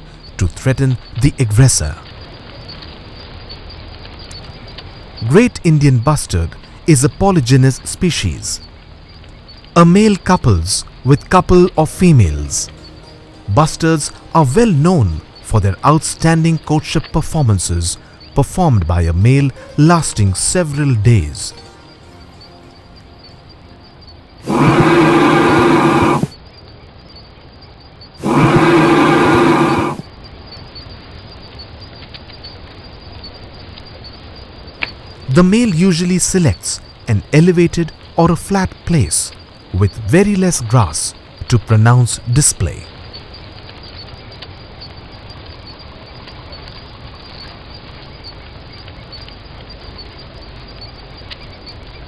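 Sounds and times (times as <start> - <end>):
steady grassland hiss: 0.0 - 52.0
faint high ticks: 5.8 - 13.1, 28.2 - 35.8, 42.3 - 52.0
bustard deep booming call: 24.4 - 26.3, 28.2 - 30.0.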